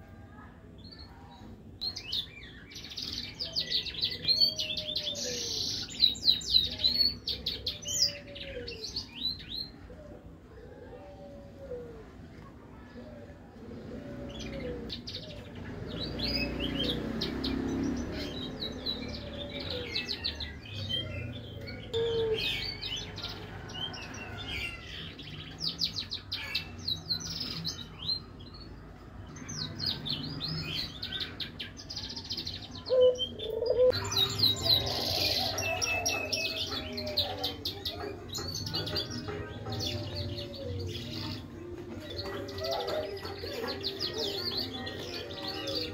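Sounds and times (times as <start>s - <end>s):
finch chirping and trilling: 14.2s - 28.7s, 29.3s - 45.9s.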